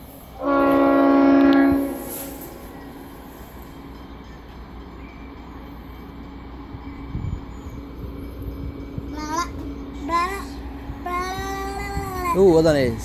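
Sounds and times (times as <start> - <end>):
train horn blast: 0.4 - 2.7.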